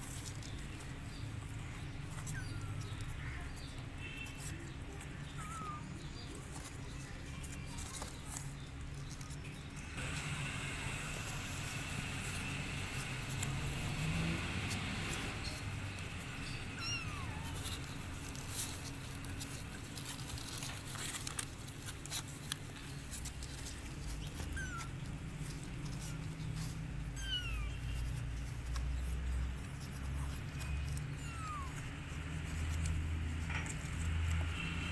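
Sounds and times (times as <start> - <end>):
claws scratching on cardboard: 0.0 - 10.1, 11.3 - 34.9
kittens mewing: 2.0 - 6.5, 16.4 - 18.9, 24.2 - 28.2, 30.3 - 32.3.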